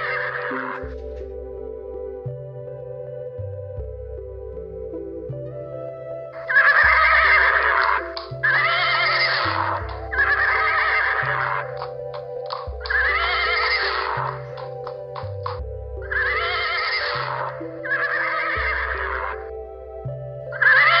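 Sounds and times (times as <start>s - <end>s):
background music: 0.0s - 21.0s
horse whinnying: 6.4s - 19.4s, 20.6s - 21.0s.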